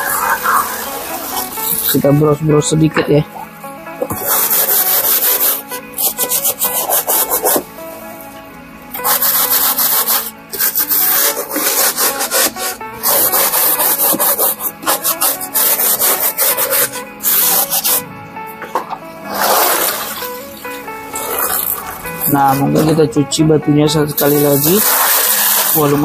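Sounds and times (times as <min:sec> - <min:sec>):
brush scrubbing styrofoam: 0:00.0 - 0:02.2, 0:04.1 - 0:07.6, 0:09.0 - 0:18.0, 0:21.3 - 0:22.8, 0:24.1 - 0:26.0.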